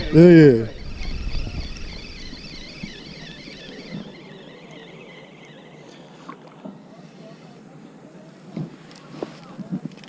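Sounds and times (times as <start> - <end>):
fishing reel gear whine: 0.0 - 7.6.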